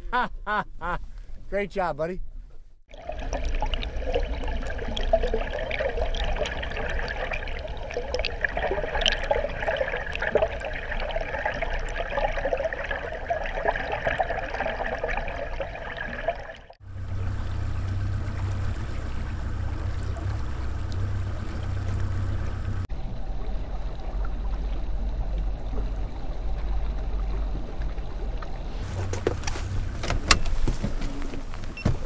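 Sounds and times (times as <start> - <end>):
water rushing and gurgling: 2.9 - 32.0
outboard motor humming: 16.8 - 22.9, 28.8 - 32.0.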